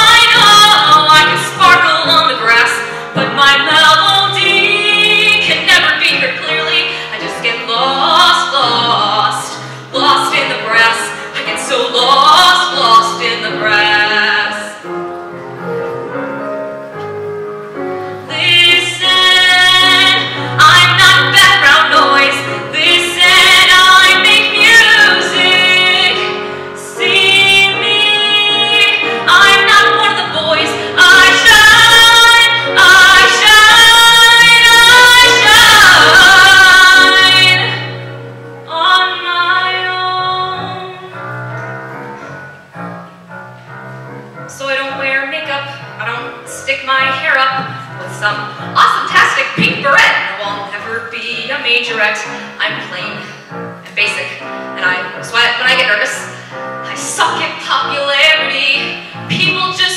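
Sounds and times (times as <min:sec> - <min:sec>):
woman singing with vibrato: 0:00.0 - 0:14.8, 0:18.3 - 0:41.2, 0:44.5 - 0:53.4, 0:54.0 - 0:59.9
musical accompaniment: 0:00.0 - 0:59.9.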